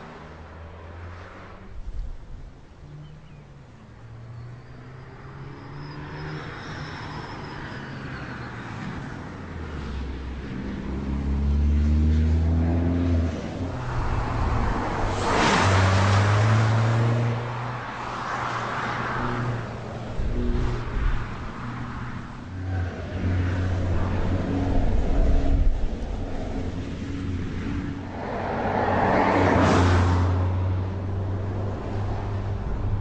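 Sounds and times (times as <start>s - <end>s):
car passing whoosh: 11.2s - 22.2s, 23.7s - 33.0s.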